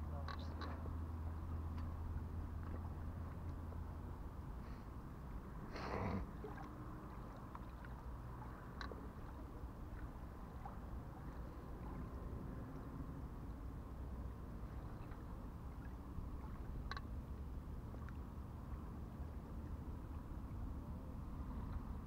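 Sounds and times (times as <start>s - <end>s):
small waves lapping: 0.1s - 22.0s
faint clicks: 8.7s - 9.0s.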